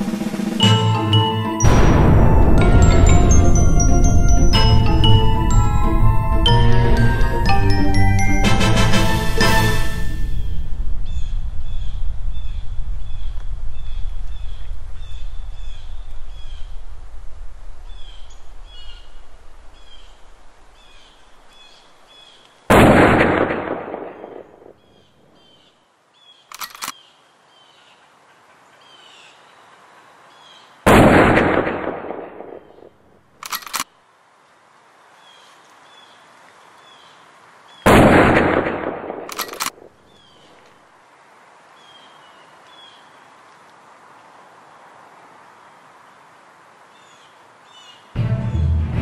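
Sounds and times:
loud bangs: 1.6 - 6.9, 37.9 - 39.3
low rumble: 1.6 - 7.8, 9.9 - 19.7
birds chirping: 10.2 - 17.0, 17.8 - 22.6, 39.3 - 40.7.

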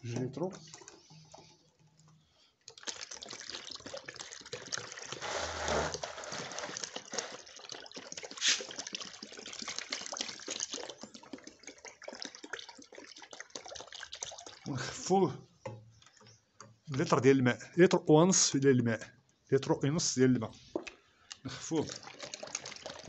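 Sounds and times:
liquid pouring and splashing: 0.0 - 1.6, 2.6 - 15.0, 20.5 - 23.0.

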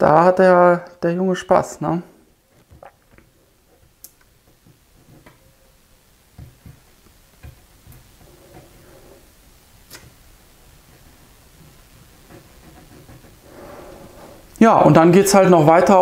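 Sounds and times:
cat moving in wooden cat house: 10.8 - 14.5.

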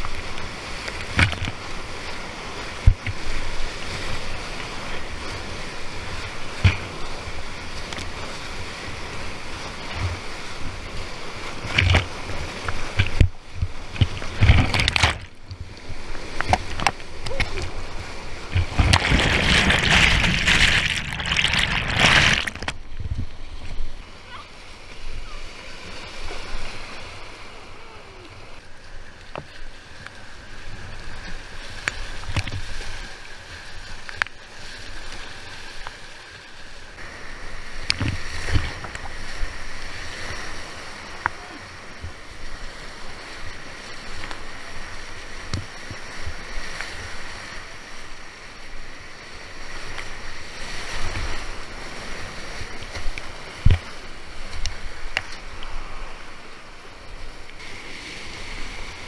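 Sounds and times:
rushing whitewater: 0.0 - 22.8
paddle strokes thudding: 11.5 - 23.3.

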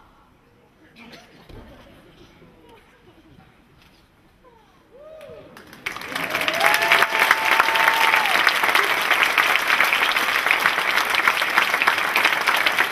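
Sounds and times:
audience applauding: 5.5 - 12.9.

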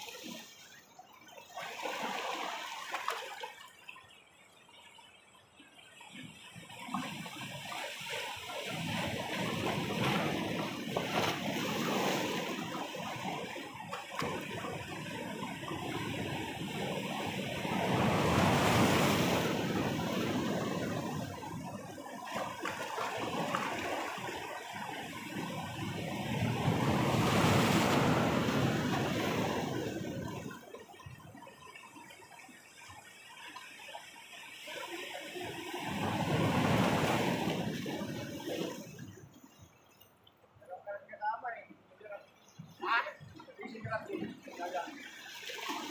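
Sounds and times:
sea waves breaking on boulders: 6.6 - 33.0, 34.7 - 39.8, 42.0 - 45.9.

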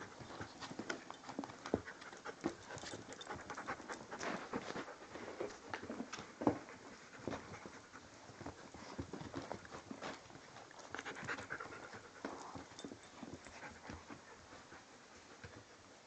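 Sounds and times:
small irregular clicks and knocks: 0.0 - 4.4
puppies scuffling: 0.0 - 15.7
puppies panting: 0.0 - 16.0.

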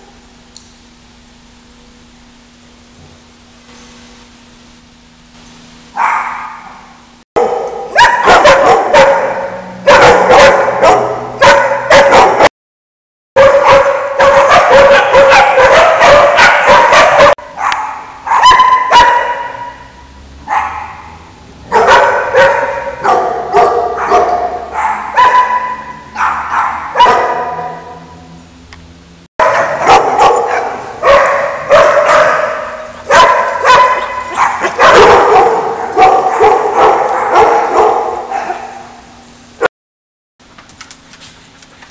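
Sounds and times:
dogs barking and yipping: 6.0 - 12.5, 13.4 - 28.4, 29.4 - 39.7.

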